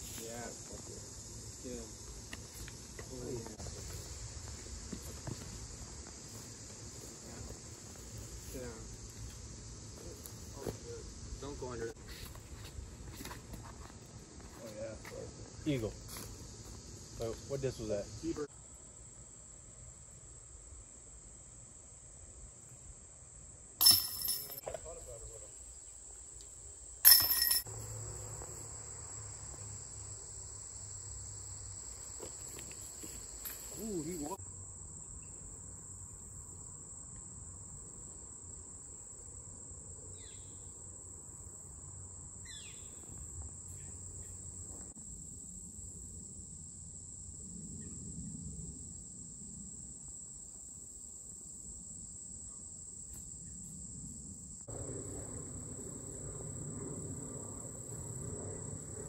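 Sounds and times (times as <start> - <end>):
insects buzzing: 0.0 - 59.0
sharp metallic clank: 23.8 - 24.6, 27.0 - 27.7.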